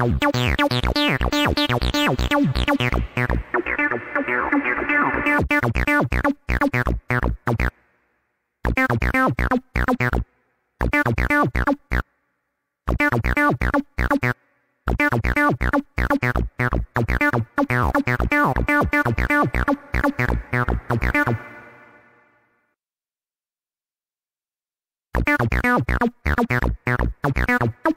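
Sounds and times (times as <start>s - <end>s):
acid synth bassline: 0.0s - 7.7s, 12.9s - 22.2s, 25.2s - 27.9s.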